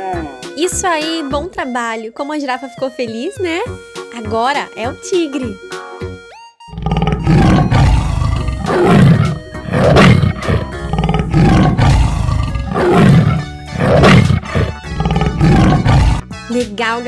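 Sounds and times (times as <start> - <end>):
tiger roaring and growling: 6.7 - 16.2.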